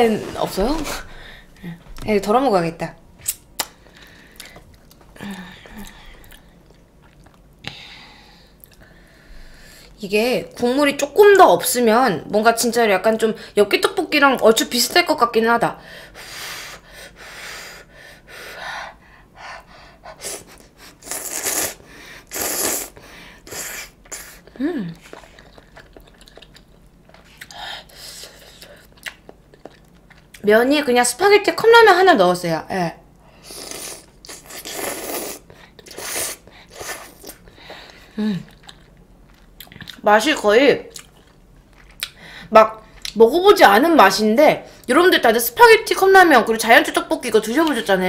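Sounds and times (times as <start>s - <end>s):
person slurping noodles: 20.2s - 25.4s, 33.4s - 37.4s.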